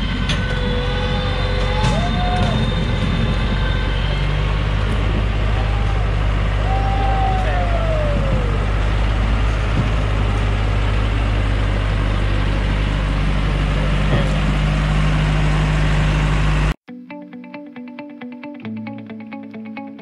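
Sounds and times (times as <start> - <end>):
diesel truck engine running: 0.0 - 16.8
electric guitar music: 16.8 - 20.0.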